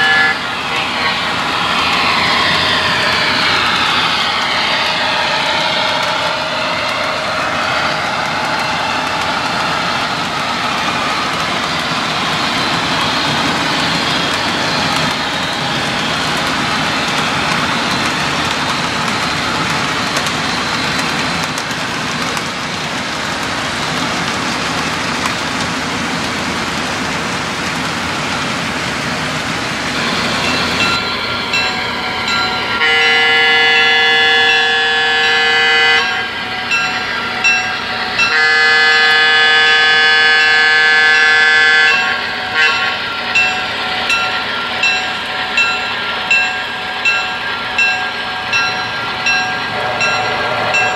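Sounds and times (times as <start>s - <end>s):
train air horn blasts: 0.0s - 3.6s, 32.7s - 36.7s, 38.2s - 43.2s, 49.7s - 50.9s
model train rumbling on track: 0.0s - 50.9s.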